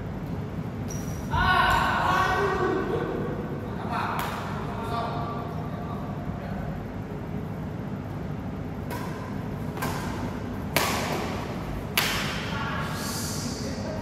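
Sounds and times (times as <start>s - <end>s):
rackets striking shuttlecock: 8.8s - 12.5s.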